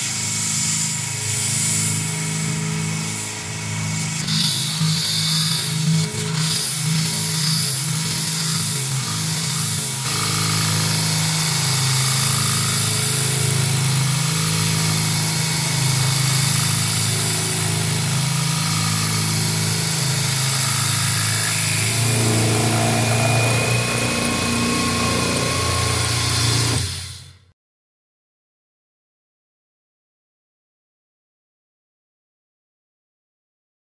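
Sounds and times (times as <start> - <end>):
milling machine cutting metal: 0.5 - 27.4.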